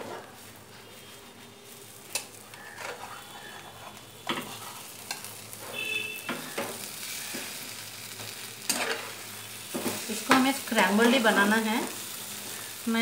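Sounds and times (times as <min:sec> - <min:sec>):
egg frying softly: 0:00.0 - 0:13.0
spatula knocking and scraping pan: 0:08.2 - 0:09.1, 0:09.7 - 0:10.9.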